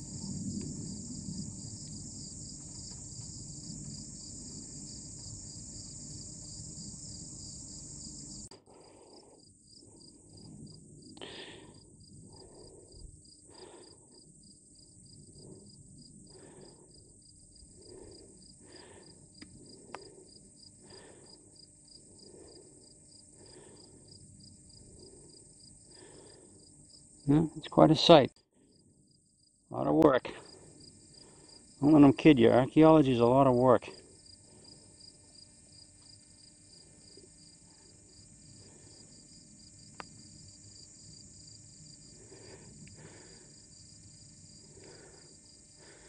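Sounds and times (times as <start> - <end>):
low rumble: 0.0 - 8.0
insects chirring: 0.0 - 46.0.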